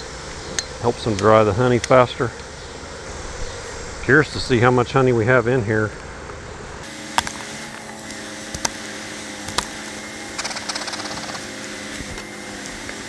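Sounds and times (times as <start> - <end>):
honey bees humming: 0.0 - 13.0
hive tool prying wooden lid: 7.1 - 12.2
rapid crackling ticks: 10.4 - 11.4.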